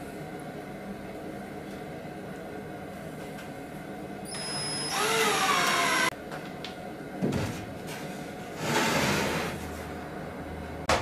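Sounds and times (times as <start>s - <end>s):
cordless drill whining: 4.3s - 6.1s.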